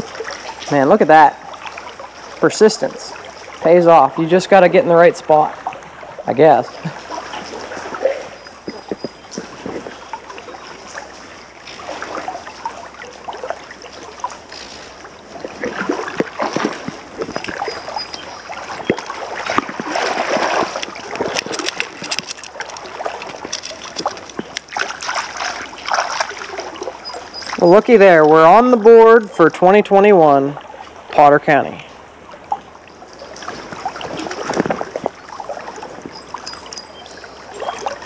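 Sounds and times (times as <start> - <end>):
flowing river water: 0.0 - 38.0
fish splashing at surface: 6.8 - 27.6.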